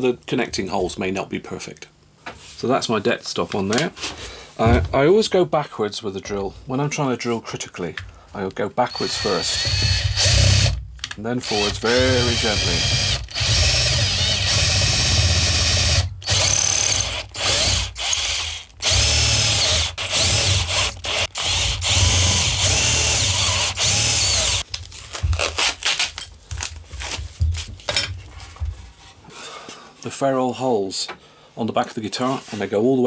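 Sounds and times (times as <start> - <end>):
cordless drill boring into wood: 8.9 - 10.8, 11.4 - 24.6.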